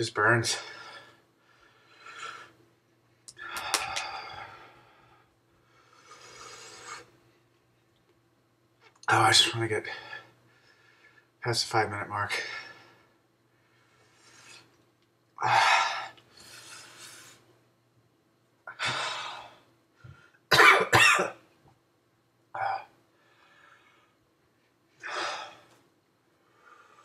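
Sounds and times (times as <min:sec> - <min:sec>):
man breathing: 0:00.5 - 0:02.6, 0:03.2 - 0:07.2, 0:09.8 - 0:11.4, 0:12.3 - 0:14.8, 0:15.4 - 0:17.5, 0:18.7 - 0:20.5, 0:22.6 - 0:24.3, 0:24.9 - 0:27.0
man coughing: 0:20.5 - 0:21.4.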